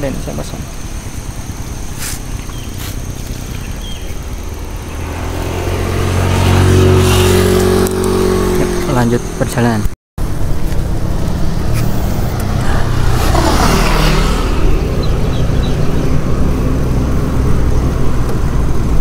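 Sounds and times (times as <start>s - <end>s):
bike tyres rolling on asphalt: 0.0s - 8.8s, 10.2s - 19.0s
wind rushing over microphone: 10.2s - 19.0s.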